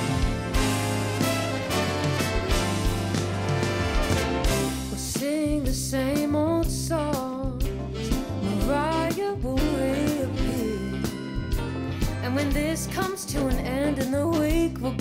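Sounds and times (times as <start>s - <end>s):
steady bass line: 0.0s - 15.0s
upbeat pop song: 0.0s - 15.0s
sung vocal melody with vibrato: 8.4s - 15.0s.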